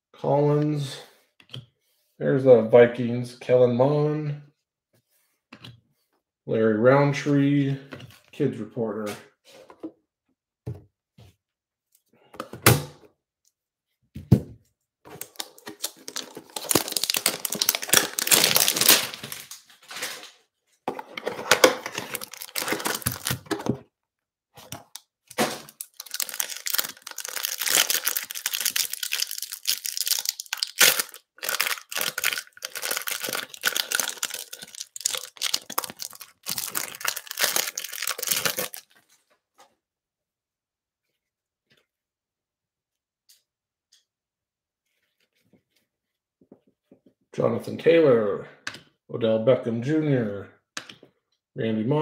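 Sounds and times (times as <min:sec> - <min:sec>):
plastic wrapper crinkling: 0:15.1 - 0:20.4, 0:21.4 - 0:23.8, 0:24.6 - 0:39.0.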